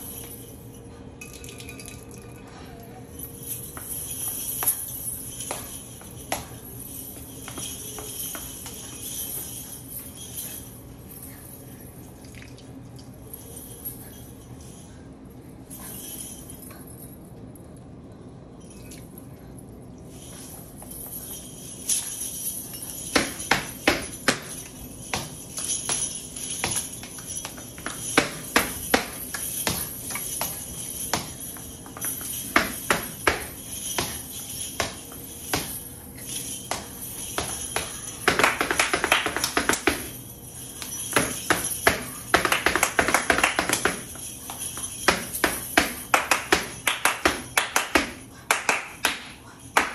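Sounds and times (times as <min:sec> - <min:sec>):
metal coins jingling: 0:03.1 - 0:12.3, 0:20.1 - 0:48.4
shoes stamping: 0:03.6 - 0:09.7, 0:23.1 - 0:40.2
handclaps: 0:37.8 - 0:40.1, 0:40.8 - 0:49.9.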